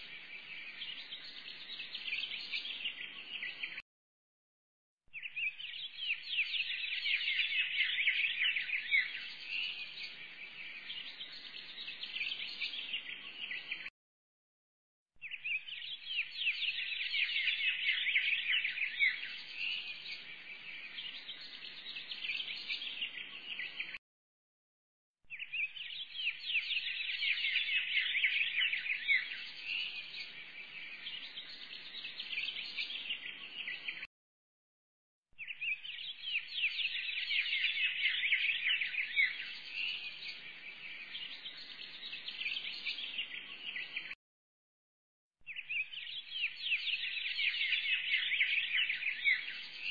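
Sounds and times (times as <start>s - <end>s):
small birds chirping: 0.0s - 3.8s, 5.1s - 13.9s, 15.2s - 24.0s, 25.3s - 34.1s, 35.4s - 44.2s, 45.4s - 49.9s.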